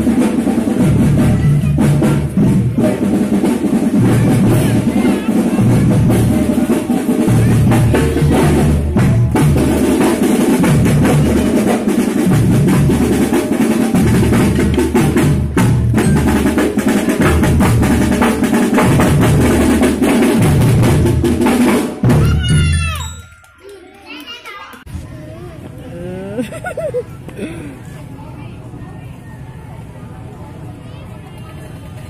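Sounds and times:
bass drums beating: 0.0 - 23.2
snare drums rolling: 0.0 - 23.4
bell lyres ringing: 15.9 - 17.4, 22.3 - 24.8.

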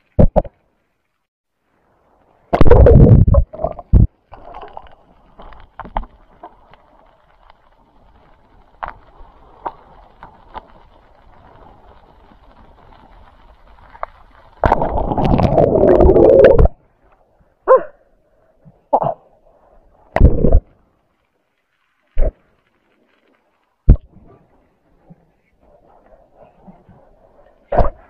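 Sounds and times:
water splashing: 14.2 - 16.8
rush of water: 14.5 - 16.8.

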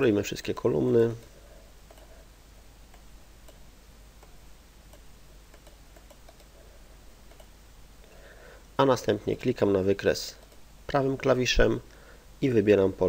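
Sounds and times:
low steady room hum: 0.0 - 13.0
computer mouse clicks: 1.9 - 2.2, 2.9 - 3.6, 4.2 - 6.6, 7.2 - 7.6, 10.4 - 10.7.

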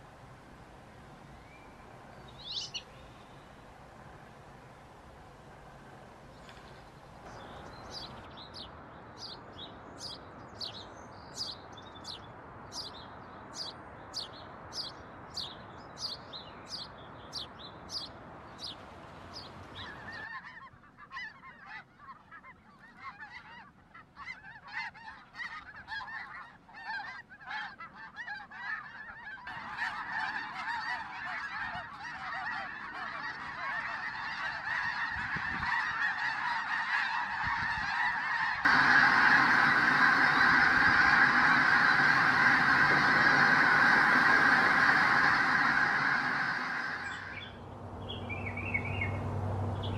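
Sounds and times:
sparrow chirping: 1.4 - 3.4
flock of geese honking: 19.7 - 47.6.

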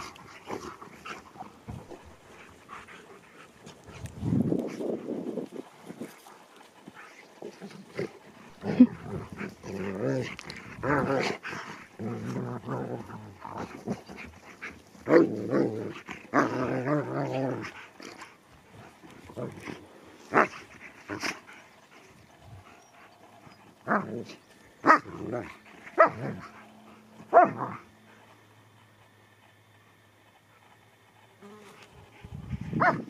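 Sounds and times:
dogs growling: 0.0 - 29.1
dogs barking: 22.7 - 27.9, 32.8 - 33.0.

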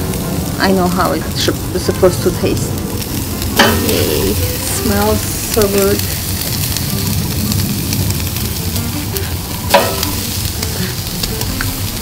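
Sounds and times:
meat sizzling on a grill: 0.0 - 12.0
loud crack from grill: 2.5 - 12.0.

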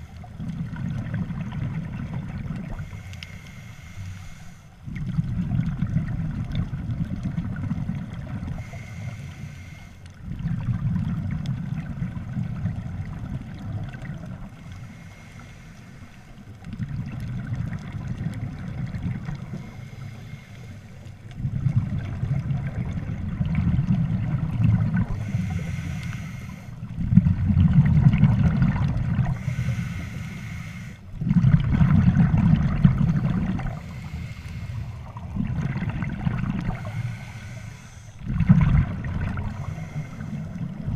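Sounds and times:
rumble of exhaled bubbles: 0.0 - 3.2, 4.8 - 9.0, 10.1 - 15.0, 16.5 - 20.1, 21.1 - 30.4, 31.0 - 40.9
regulator hiss on inhale: 2.6 - 5.0, 8.4 - 10.2, 14.5 - 16.7, 19.1 - 21.3, 24.9 - 27.0, 29.2 - 31.2, 33.6 - 35.2, 36.6 - 38.2, 39.3 - 40.9.

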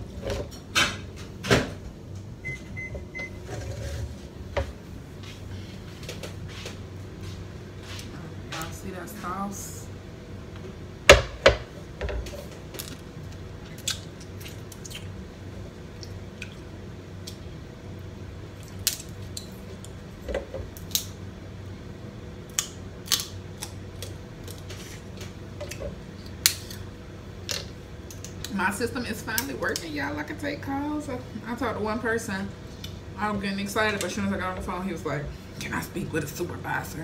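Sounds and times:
wet eating sounds: 12.8 - 17.6, 18.5 - 20.1
crab shells cracking: 18.6 - 20.0, 20.7 - 21.2, 22.5 - 24.7.

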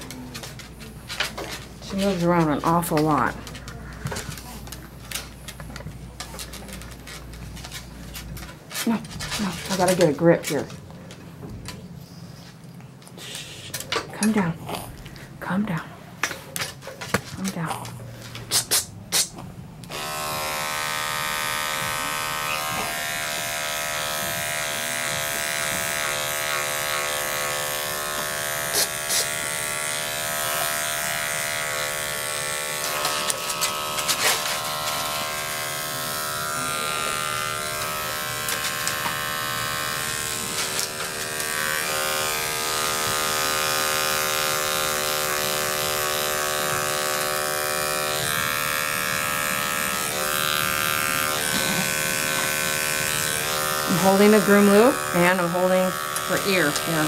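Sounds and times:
electric clippers buzzing: 0.0 - 4.4, 9.4 - 10.8, 19.8 - 57.0.

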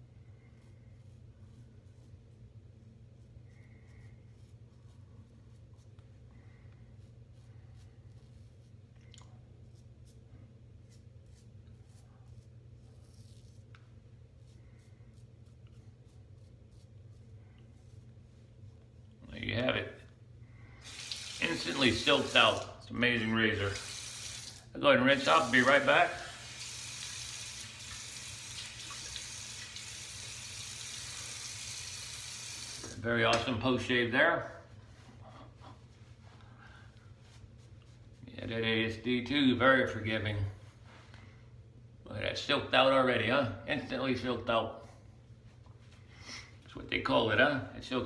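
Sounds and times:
steady low hum: 0.0 - 22.0
tap water running into sink: 20.8 - 22.7, 25.4 - 33.0.

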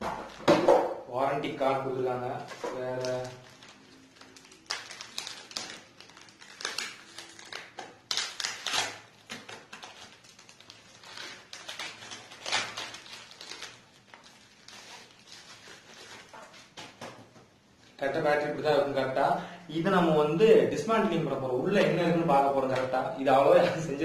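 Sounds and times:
plastic packaging crinkling: 1.6 - 17.1.

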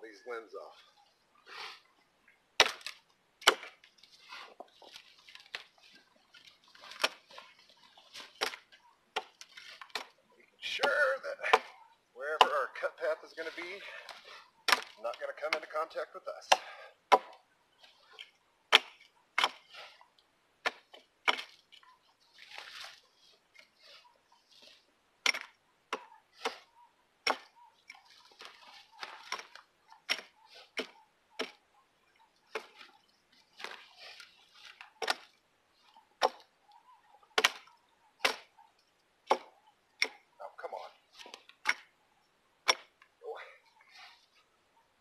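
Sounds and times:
axe chopping wood: 2.6 - 3.9, 6.8 - 7.5, 8.1 - 12.9, 14.6 - 17.4, 18.7 - 19.8, 20.6 - 21.6, 25.2 - 31.6, 32.5 - 32.9, 33.6 - 35.3, 36.2 - 36.5, 37.4 - 38.5, 39.2 - 40.3, 41.2 - 41.9, 42.6 - 43.0
soft rustling: 3.8 - 9.9.

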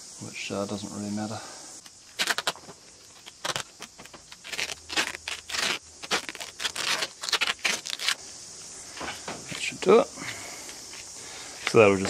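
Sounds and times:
tape pulled off roll: 2.1 - 8.2.

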